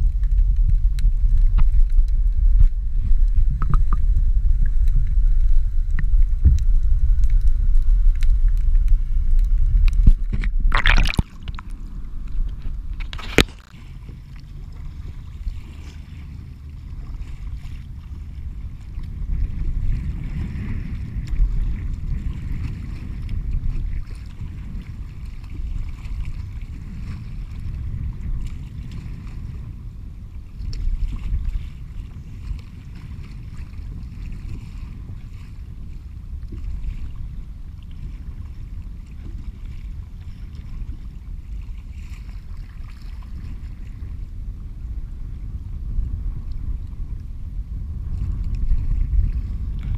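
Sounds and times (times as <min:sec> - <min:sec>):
muffled underwater rumble: 0:00.0 - 0:49.9
water sloshing around kayak: 0:00.0 - 0:49.9
loud splashes: 0:10.7 - 0:11.6.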